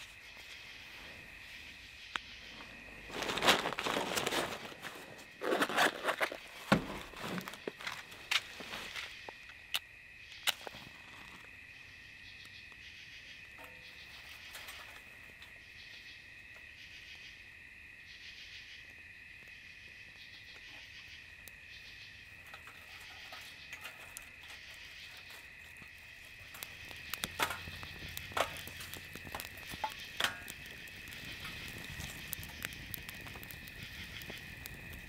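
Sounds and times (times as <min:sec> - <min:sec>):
insect trill: 0:00.0 - 0:35.0
rasping insect call: 0:00.0 - 0:35.0
dry twigs snapping: 0:03.0 - 0:10.8, 0:23.7 - 0:35.0.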